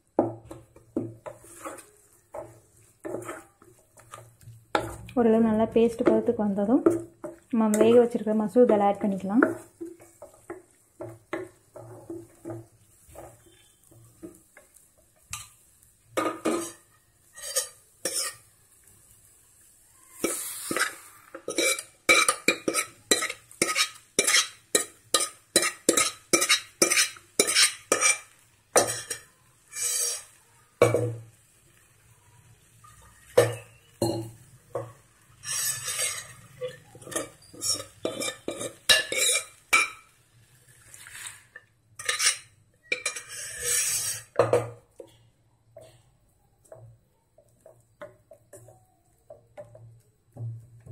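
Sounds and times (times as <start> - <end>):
spatula scraping metal pan: 1.0 - 5.1, 16.2 - 18.5, 20.1 - 31.0, 32.8 - 44.5.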